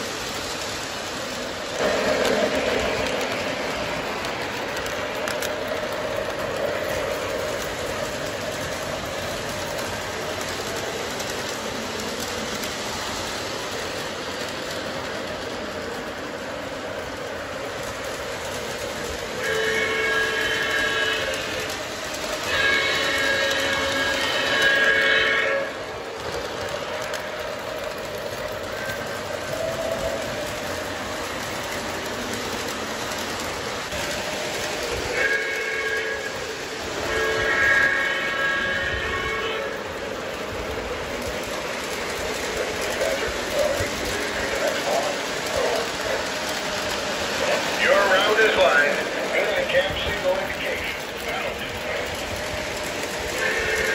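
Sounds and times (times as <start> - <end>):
model train wheels rumbling: 0.0 - 53.9
train horn chord: 19.4 - 21.4, 22.4 - 25.8.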